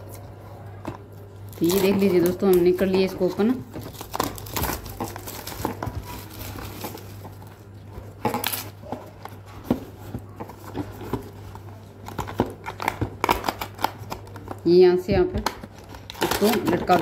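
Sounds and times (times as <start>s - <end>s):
plastic wrapping crinkling: 0.0s - 14.7s, 15.4s - 17.0s
low steady hum: 0.0s - 17.0s.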